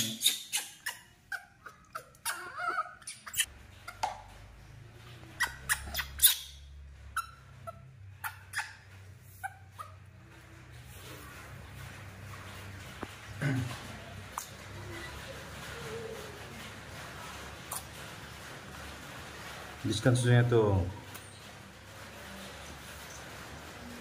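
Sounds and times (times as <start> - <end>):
baby monkey squeaking: 0.0 - 4.0, 5.4 - 10.0.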